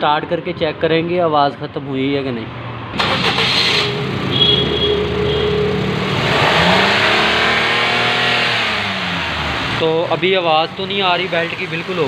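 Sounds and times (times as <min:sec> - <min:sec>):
car engine revving: 0:02.9 - 0:12.0.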